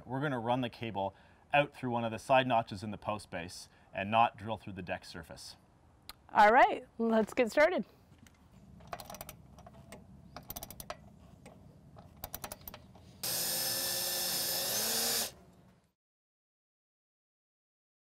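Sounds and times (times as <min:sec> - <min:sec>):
ratchet wrench clicking: 0:08.9 - 0:09.7, 0:10.4 - 0:11.0, 0:12.0 - 0:15.3
cordless drill running: 0:13.2 - 0:15.4.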